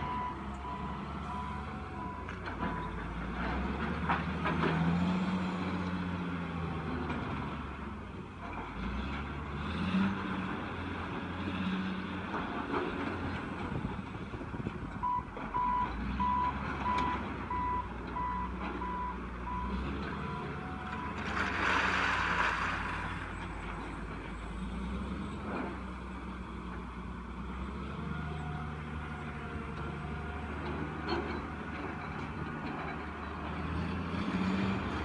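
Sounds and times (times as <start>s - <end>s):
reversing alarm beeping: 15.0s - 21.2s.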